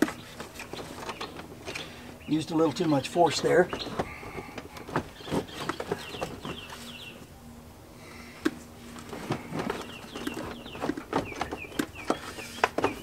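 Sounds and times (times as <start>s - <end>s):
plastic dashboard clicks and rattles: 3.0s - 6.7s, 9.0s - 13.0s.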